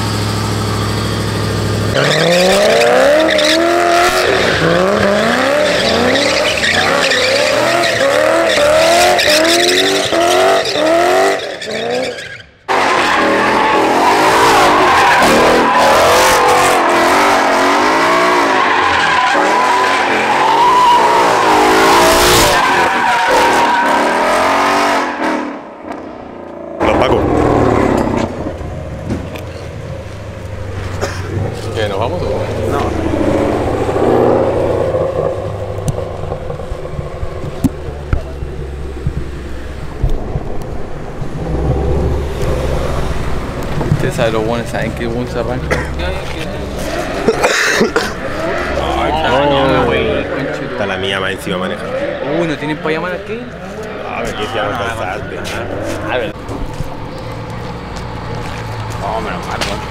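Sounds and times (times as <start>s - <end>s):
car engine revving: 0.0s - 59.9s
tyre squeal: 2.0s - 16.8s, 18.0s - 24.2s.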